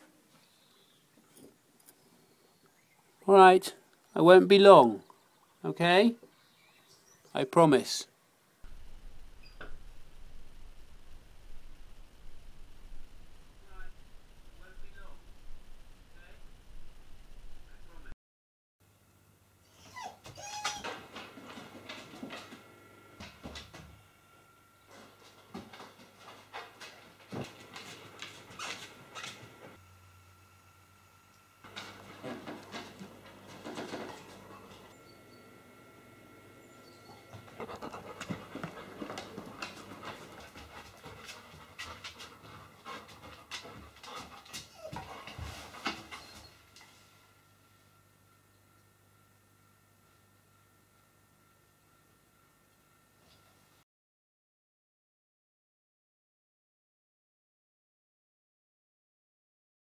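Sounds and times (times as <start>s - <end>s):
dog whimpering: 19.6s - 21.0s, 44.6s - 46.6s
dog panting: 36.9s - 46.6s.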